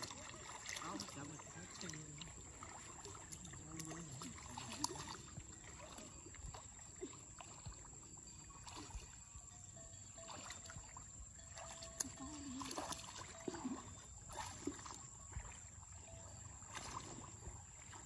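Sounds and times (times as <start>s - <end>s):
small splashes: 0.0s - 18.0s
water sloshing and lapping: 0.0s - 18.0s.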